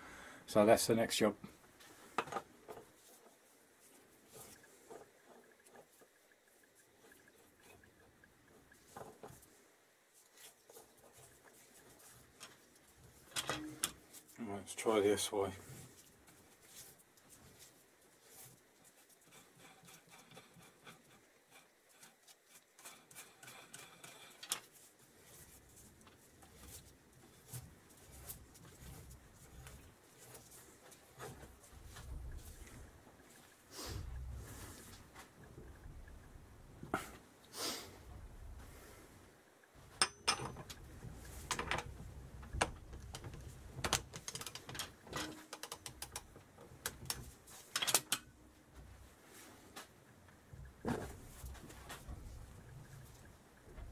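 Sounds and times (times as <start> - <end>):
faint metallic clicks and scraping: 1.4 - 38.9, 39.6 - 53.9
metal tools clinking: 40.0 - 40.8.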